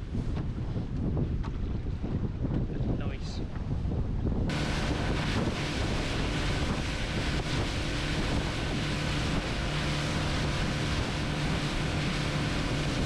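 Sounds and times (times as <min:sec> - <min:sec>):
wind noise on microphone: 0:00.0 - 0:13.0
outboard motor running: 0:04.5 - 0:13.0
water rushing: 0:04.5 - 0:13.0.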